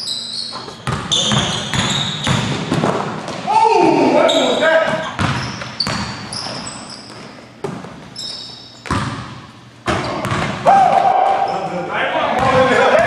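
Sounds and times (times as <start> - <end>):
sneaker squeaks on court: 0.0 - 3.0, 4.2 - 10.6
basketball bouncing on gym floor: 0.5 - 3.5, 4.8 - 8.2, 8.8 - 11.4, 12.3 - 13.0.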